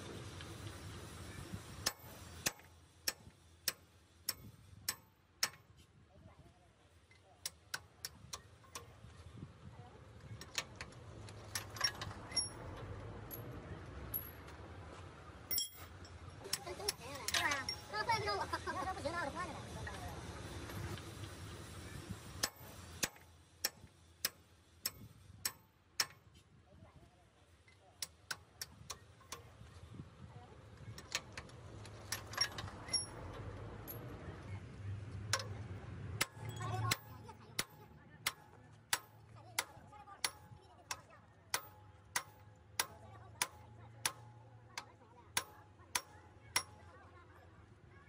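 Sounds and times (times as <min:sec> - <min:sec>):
hammer tapping on steel: 0:01.8 - 0:05.7, 0:22.4 - 0:26.3, 0:36.2 - 0:46.9.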